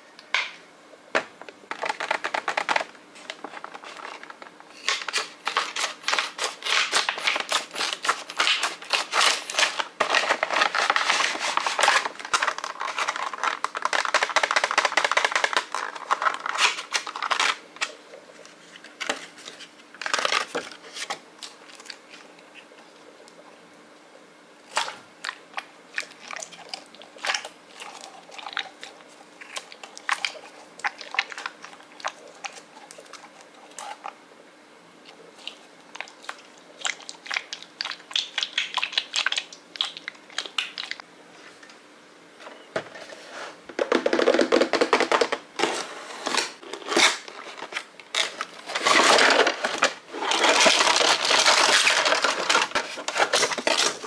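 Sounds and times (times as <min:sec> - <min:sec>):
toy handling noises: 0:01.7 - 0:22.7, 0:43.8 - 0:54.0
packaging rustling and scraping: 0:01.7 - 0:22.8, 0:42.5 - 0:54.0.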